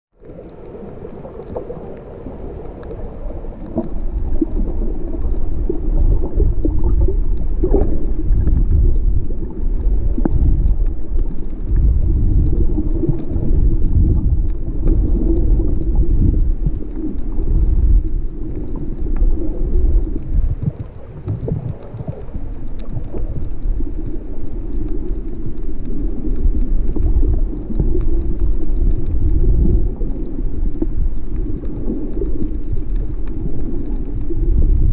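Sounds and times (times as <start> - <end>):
underwater water rumble: 0.1 - 34.9
faint high crackle: 0.2 - 34.9.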